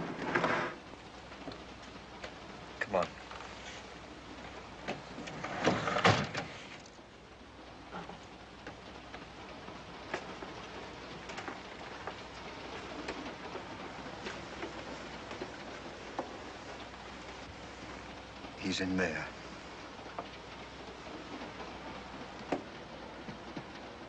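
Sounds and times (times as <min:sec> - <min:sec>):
steady hiss: 0:00.0 - 0:24.0
flurry of knocks and rattles: 0:04.6 - 0:06.8, 0:07.8 - 0:24.0.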